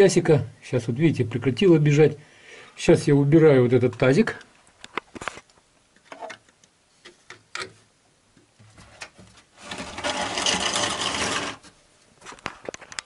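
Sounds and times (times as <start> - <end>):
plastic basin scraping rattle: 9.6 - 11.7.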